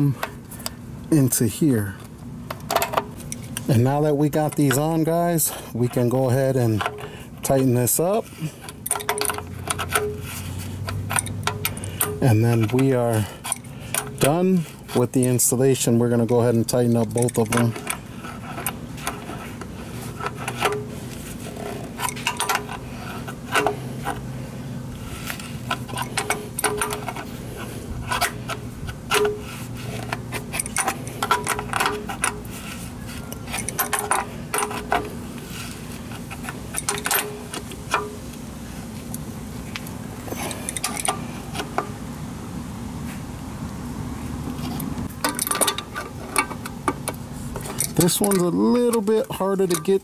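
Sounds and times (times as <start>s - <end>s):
steady low hum: 0.0s - 50.0s
wrenches clinking on metal fittings: 2.6s - 19.4s, 20.2s - 24.2s, 25.2s - 27.3s, 28.0s - 32.5s, 33.3s - 35.2s, 36.4s - 38.2s, 40.3s - 41.3s, 44.7s - 50.0s.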